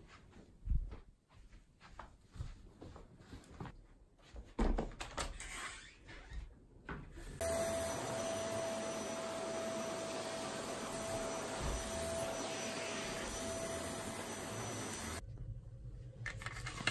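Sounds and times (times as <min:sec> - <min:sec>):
vacuum cleaner running with whine: 0:07.4 - 0:15.2.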